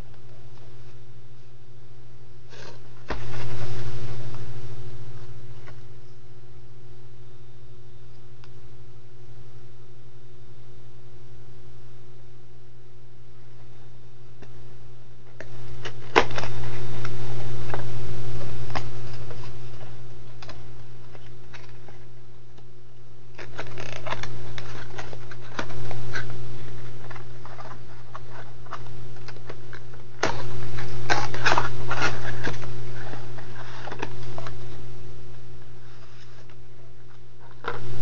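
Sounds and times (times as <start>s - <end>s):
low electrical hum: 0.0s - 38.0s
plastic packaging crinkling: 23.3s - 34.8s.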